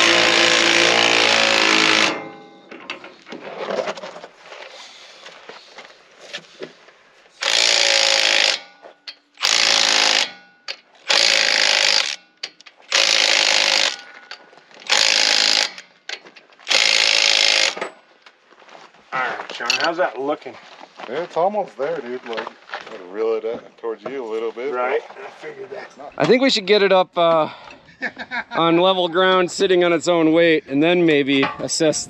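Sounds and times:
impact wrench hammering: 0:00.0 - 0:03.0, 0:07.4 - 0:18.0.

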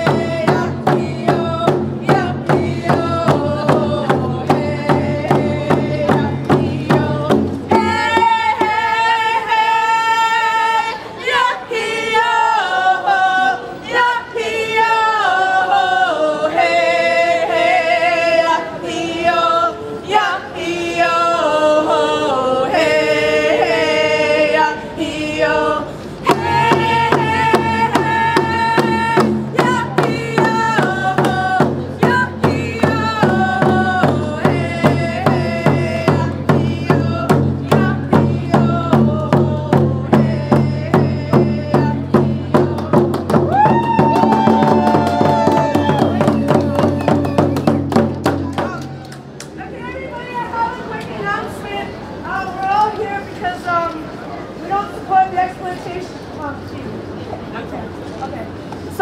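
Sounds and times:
hand drums beating: 0:00.0 - 0:08.8, 0:26.3 - 0:49.1
voices singing a chant: 0:00.0 - 0:48.9.

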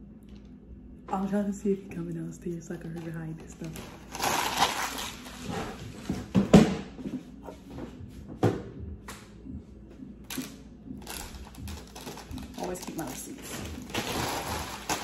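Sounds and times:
tissue paper rustling: 0:11.8 - 0:15.0.

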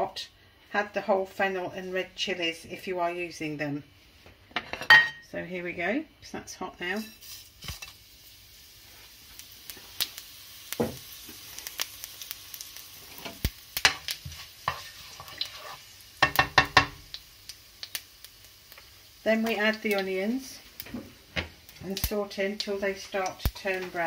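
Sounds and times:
seeds sizzling in hot oil: 0:05.8 - 0:24.0
utensil knocking against pan: 0:16.2 - 0:17.0.

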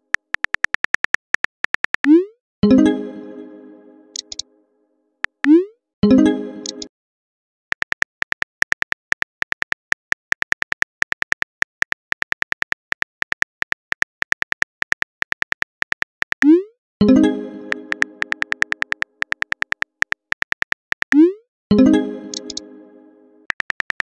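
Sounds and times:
phone keyboard key clicks: 0:00.1 - 0:02.1, 0:04.2 - 0:04.4, 0:07.7 - 0:16.5, 0:17.9 - 0:21.2, 0:22.3 - 0:22.6, 0:23.5 - 0:24.0
message sent chime: 0:17.0 - 0:18.7.

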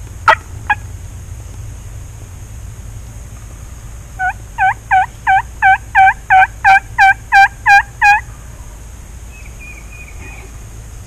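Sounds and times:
turkey yelps: 0:04.2 - 0:08.2.

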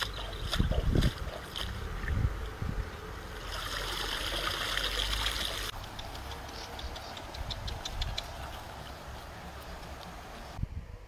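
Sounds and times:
water trickling and splashing: 0:00.0 - 0:10.6.

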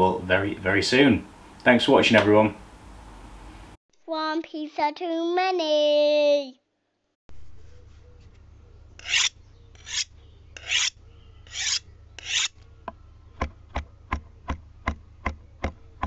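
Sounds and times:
short rasping strokes: 0:09.0 - 0:12.6.

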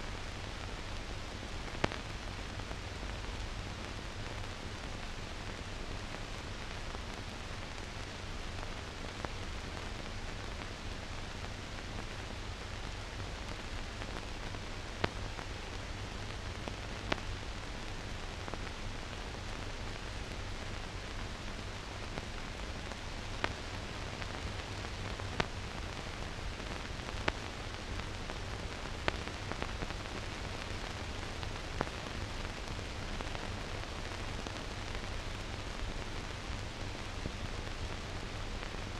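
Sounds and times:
film hiss and low hum: 0:00.0 - 0:38.9.

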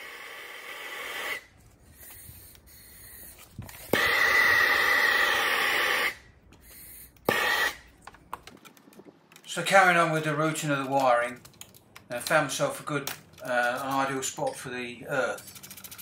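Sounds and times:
blowtorch flame hissing: 0:00.0 - 0:03.3, 0:03.9 - 0:07.8.

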